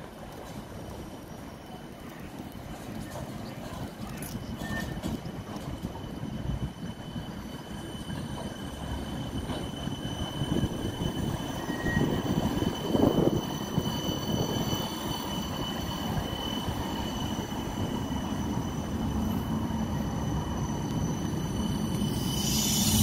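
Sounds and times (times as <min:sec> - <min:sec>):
tram wheels rumbling on rails: 0:00.0 - 0:23.0
high-pitched whines: 0:04.2 - 0:23.0.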